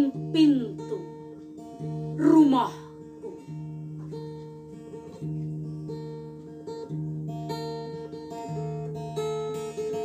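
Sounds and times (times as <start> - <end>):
acoustic guitar chords: 0.0 - 10.0.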